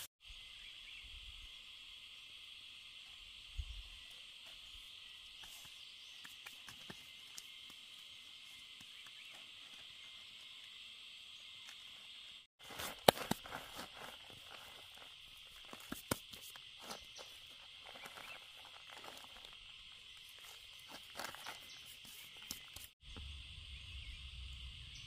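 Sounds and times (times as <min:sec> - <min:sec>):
hands sifting dry leaf litter: 0:12.6 - 0:23.0
high-pitched insect drone: 0:13.8 - 0:25.0.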